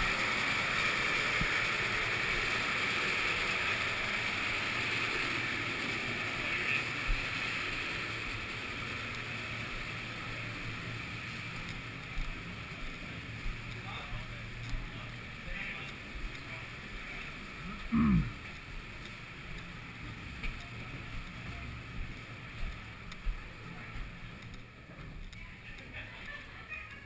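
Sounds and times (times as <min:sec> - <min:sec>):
rushing hiss in stairwell: 0:00.0 - 0:17.6.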